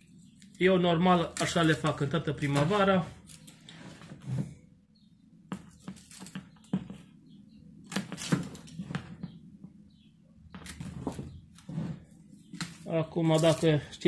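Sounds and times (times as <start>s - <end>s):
pruning shears snipping stems: 1.2s - 3.7s.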